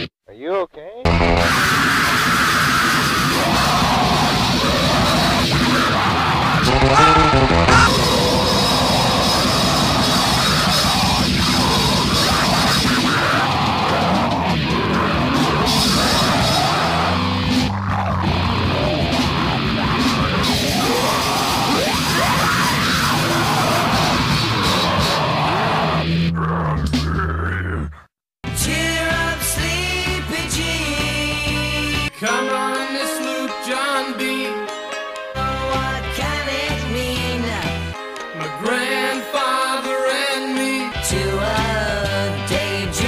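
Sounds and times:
heavy rock band playing: 0:06.4 - 0:08.6.

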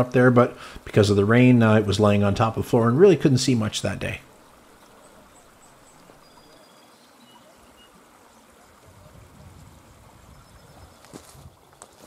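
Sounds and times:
steady low hiss: 0:00.0 - 0:12.0
distant bird chirps: 0:04.2 - 0:08.8.

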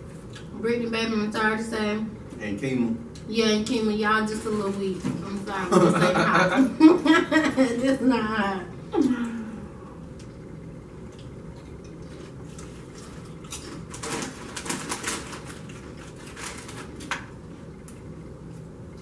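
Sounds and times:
tortilla chips being chewed: 0:10.2 - 0:19.0
chip bags crinkling: 0:12.9 - 0:17.4.

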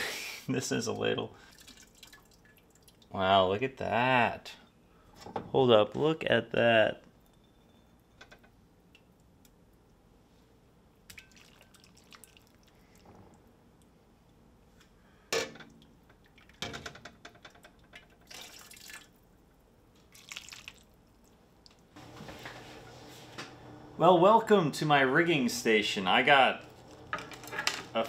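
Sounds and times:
liquid splashing and dripping: 0:01.4 - 0:03.1, 0:11.1 - 0:13.0, 0:17.9 - 0:19.3, 0:20.0 - 0:21.8.

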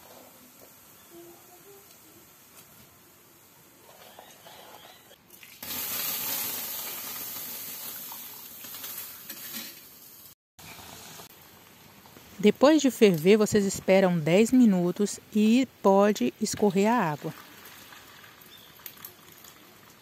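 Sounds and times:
water pouring: 0:05.2 - 0:09.9, 0:16.6 - 0:20.0.

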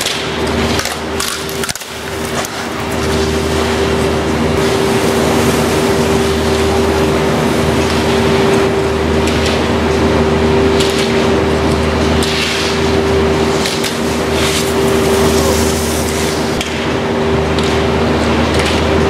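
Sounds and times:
machinery hum: 0:00.0 - 0:19.0
skis scraping on snow: 0:14.0 - 0:16.6.

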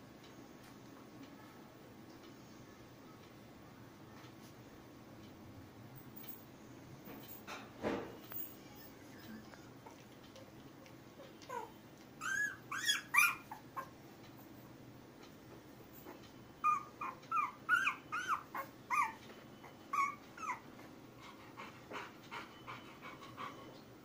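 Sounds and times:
puppy squealing and whimpering: 0:11.5 - 0:13.9, 0:16.6 - 0:20.7.

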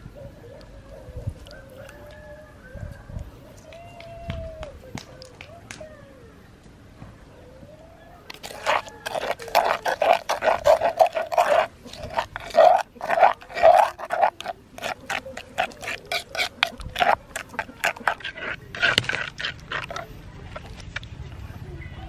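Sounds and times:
metal spoon scraping a mortar: 0:08.3 - 0:20.8.

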